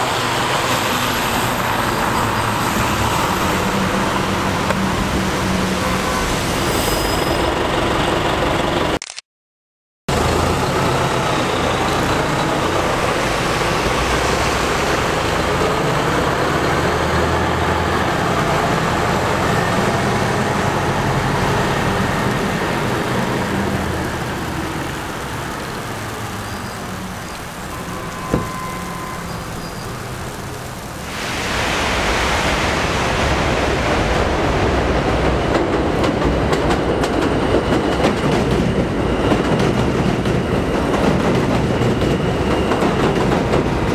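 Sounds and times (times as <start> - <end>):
traffic: 0.0 - 9.2, 10.1 - 43.9
bus diesel engine pulling away: 10.1 - 30.6
subway train wheels clattering: 31.2 - 43.9.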